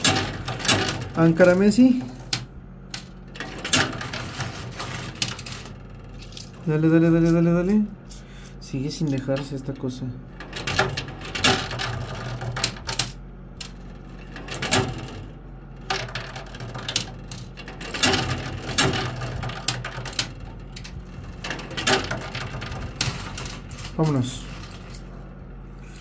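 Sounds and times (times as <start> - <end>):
arcade machine hum: 0.0 - 26.0
coins clinking and clattering: 2.9 - 7.4.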